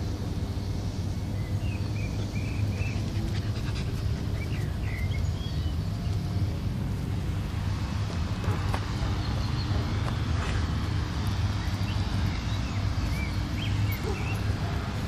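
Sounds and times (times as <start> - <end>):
puppies panting and snuffling: 2.0 - 5.4.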